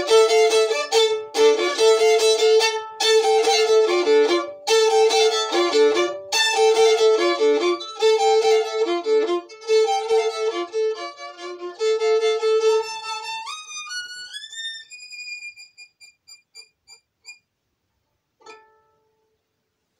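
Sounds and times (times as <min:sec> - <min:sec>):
solo violin: 0:00.0 - 0:17.0.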